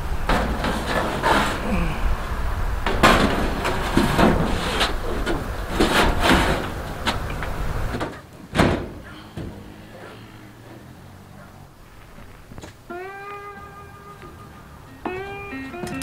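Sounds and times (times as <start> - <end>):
metal knocks bangs and scrapes: 0.2 - 1.9, 2.8 - 11.5.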